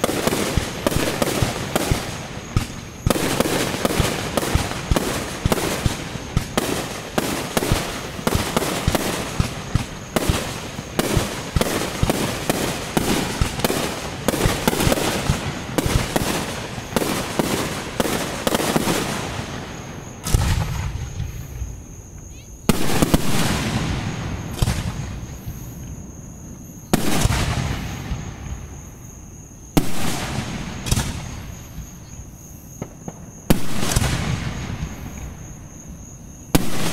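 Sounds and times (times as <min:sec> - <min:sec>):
fireworks booming and crackling: 0:00.0 - 0:36.9
loud firework bang: 0:20.2 - 0:21.5.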